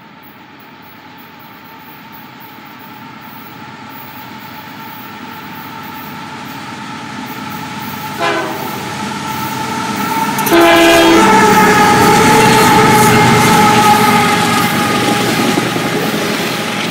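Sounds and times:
diesel locomotive engines: 0:00.0 - 0:16.9
train air horn: 0:07.9 - 0:15.8.

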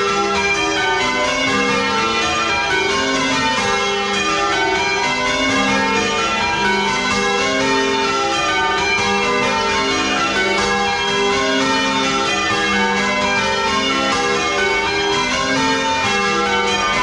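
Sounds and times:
church bells change ringing: 0:00.0 - 0:17.0.

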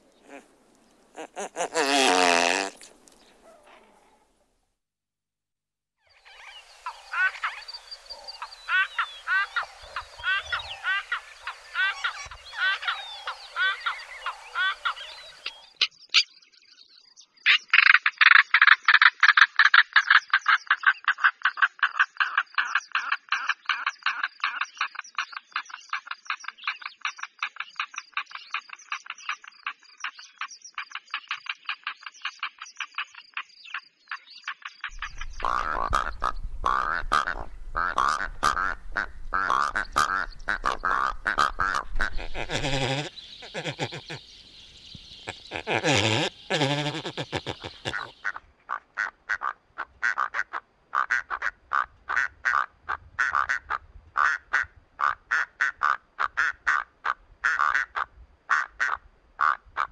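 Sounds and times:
rasping animal calls: 0:00.2 - 0:00.5, 0:01.1 - 0:04.2, 0:35.0 - 0:44.3, 0:45.1 - 0:59.9
bird rattling calls: 0:34.9 - 0:48.3.

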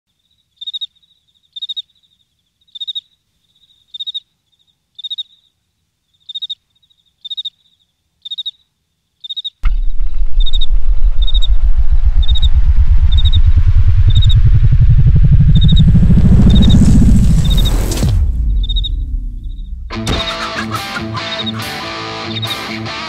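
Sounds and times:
cricket chirping: 0:00.1 - 0:14.7, 0:15.4 - 0:20.6, 0:21.2 - 0:21.6
loud low rumble: 0:09.6 - 0:20.3.

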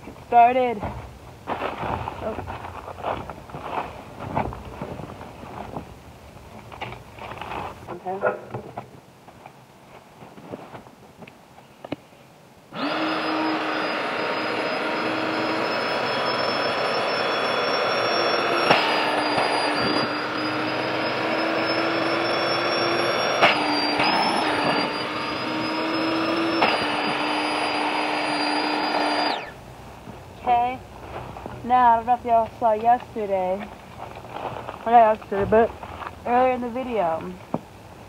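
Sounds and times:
electric air pump humming: 0:12.7 - 0:29.6.

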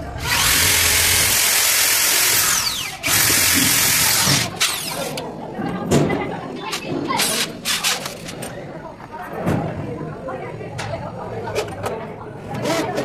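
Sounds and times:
electric drill: 0:00.1 - 0:05.2.

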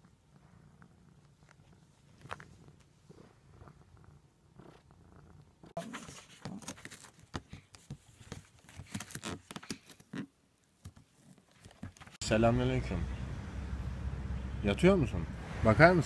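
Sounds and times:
cat purring: 0:00.0 - 0:06.5.

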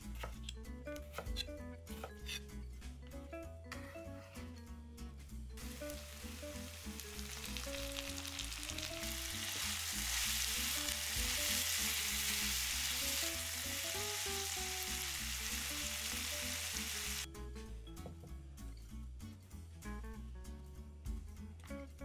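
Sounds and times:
vegetables sizzling in oil: 0:05.6 - 0:17.3.

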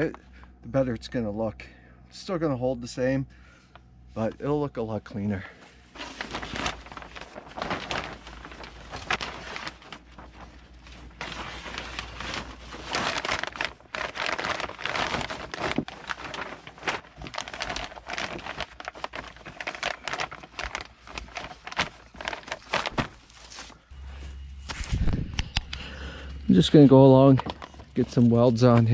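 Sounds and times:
plastic sheeting crinkling: 0:05.2 - 0:25.3, 0:26.1 - 0:28.9.

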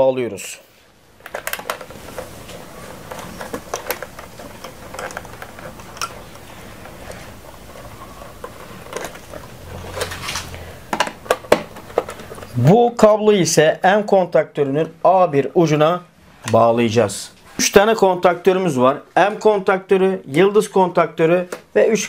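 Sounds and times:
wire clicking and scraping: 0:01.2 - 0:12.6.

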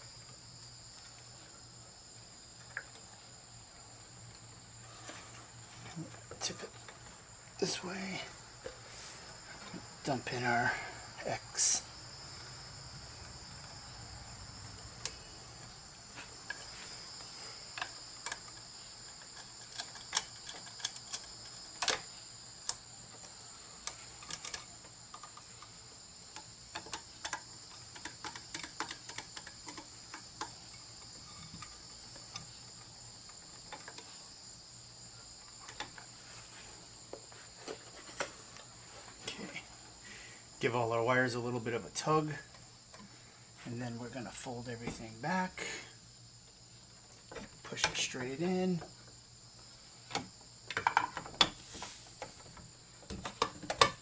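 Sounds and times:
insects chirring: 0:00.0 - 0:54.0
screwdriver and wire clicks: 0:17.8 - 0:22.0.

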